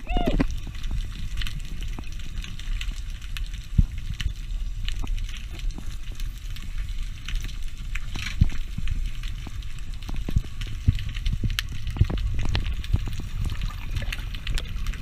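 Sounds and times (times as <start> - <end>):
low rumble of moving water: 0.0 - 15.0
underwater clicks and crackles: 0.0 - 15.0.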